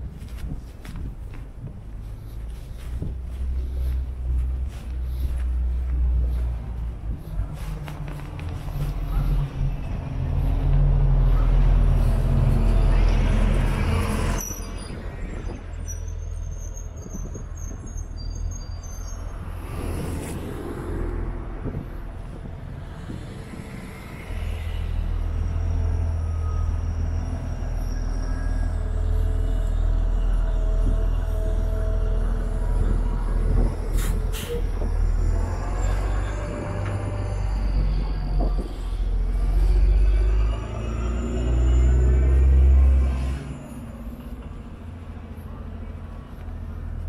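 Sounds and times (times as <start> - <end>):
low traffic rumble: 0.0 - 47.0
vehicle passing close: 19.3 - 45.0.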